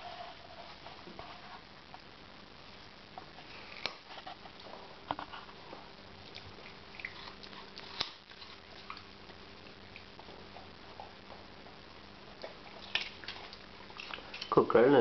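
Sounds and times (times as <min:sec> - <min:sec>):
puppy crunching carrot: 0:06.2 - 0:11.4, 0:12.3 - 0:14.6.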